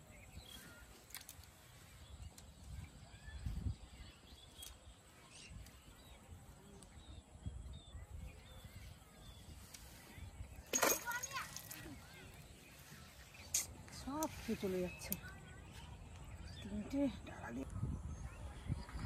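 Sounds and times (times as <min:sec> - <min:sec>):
faint bird chirps: 0:00.0 - 0:10.7.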